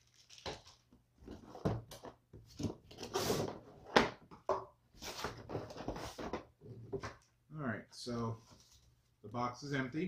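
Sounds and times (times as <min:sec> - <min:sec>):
cardboard scraping and rubbing: 0:02.6 - 0:03.8, 0:05.0 - 0:06.4.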